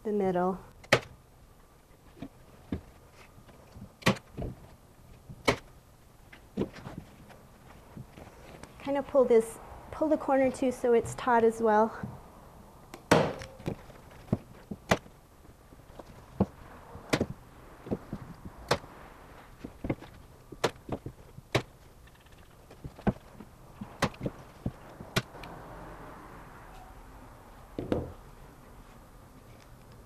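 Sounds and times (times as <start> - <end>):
canvas rustling: 6.4 - 9.2, 13.4 - 25.4.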